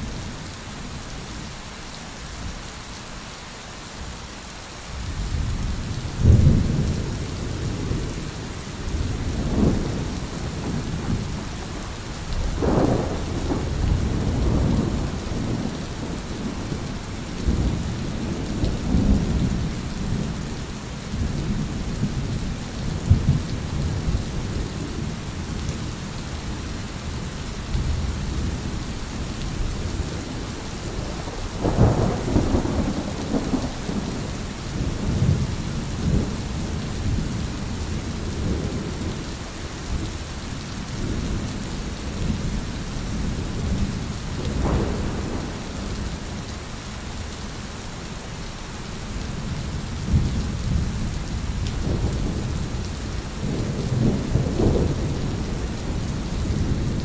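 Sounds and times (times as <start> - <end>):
steady rain: 0.0 - 57.0
thunder rumbling: 5.4 - 20.4, 29.6 - 39.2, 43.2 - 46.2, 50.0 - 57.0.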